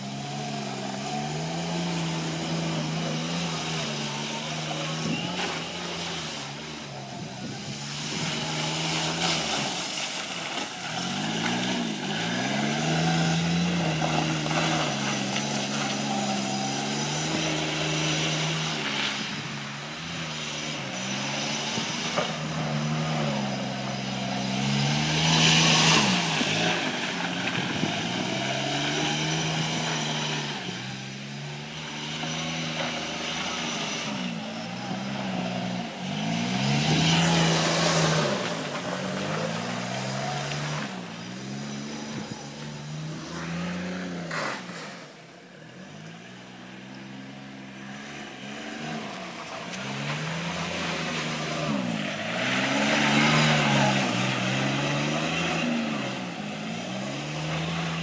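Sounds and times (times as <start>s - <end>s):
utility vehicle engine running: 0.0s - 58.0s.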